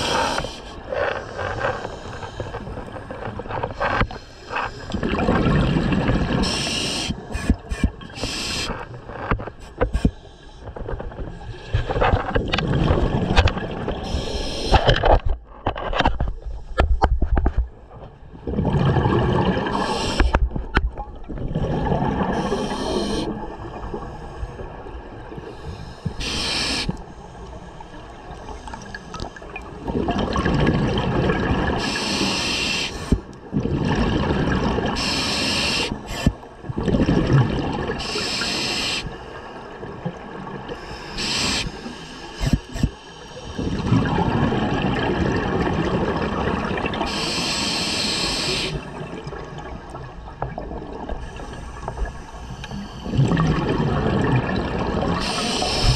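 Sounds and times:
regulator hissing inhalations: 0.0s - 0.8s, 6.4s - 8.9s, 14.0s - 14.8s, 19.7s - 20.4s, 22.4s - 23.4s, 25.5s - 27.0s, 31.8s - 33.2s, 35.0s - 36.4s, 38.0s - 39.5s, 40.8s - 43.8s, 47.1s - 49.0s, 51.3s - 53.2s, 55.2s - 55.9s
bubbling exhalations: 18.4s - 20.4s, 21.2s - 23.5s, 50.5s - 55.9s.

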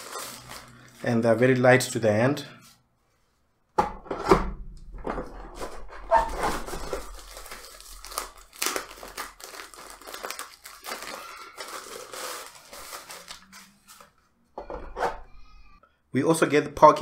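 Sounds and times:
plastic wrapping crinkling: 0.0s - 1.1s, 5.6s - 14.3s.

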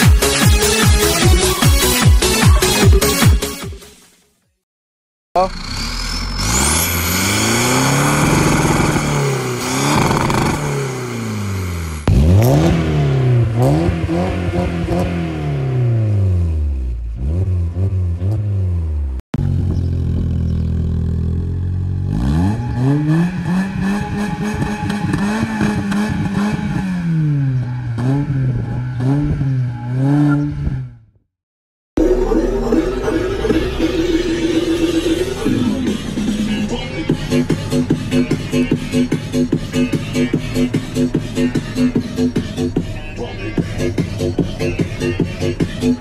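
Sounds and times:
car engine revving: 5.4s - 31.2s, 32.0s - 46.0s.

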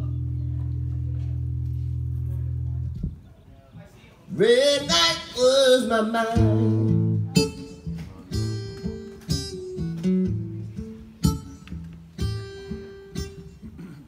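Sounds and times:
acoustic guitar blues: 4.3s - 14.0s.

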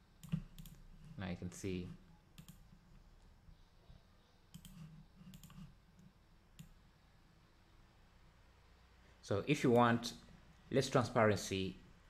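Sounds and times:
faint low room hum: 0.0s - 12.0s
computer mouse clicks: 0.2s - 0.8s, 2.4s - 2.7s, 4.5s - 6.8s.

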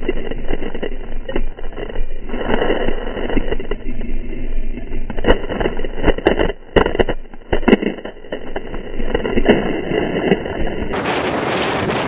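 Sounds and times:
water rushing: 8.4s - 12.0s.

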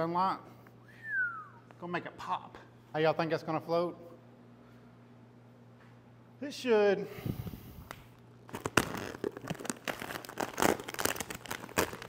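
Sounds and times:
plastic film crinkling: 8.5s - 12.0s.

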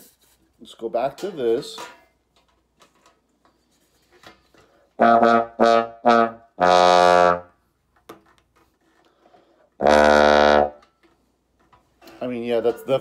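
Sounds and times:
muted bass trombone notes: 5.0s - 7.5s, 9.8s - 10.8s.

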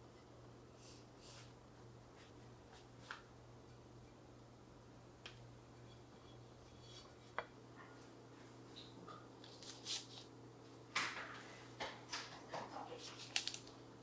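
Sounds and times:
steady low hum: 0.0s - 12.1s
paper rustling: 9.4s - 10.3s, 12.6s - 13.8s.

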